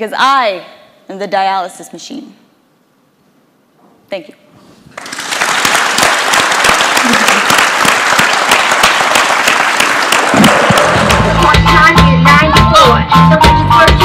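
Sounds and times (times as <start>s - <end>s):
audience applauding: 5.0s - 11.6s.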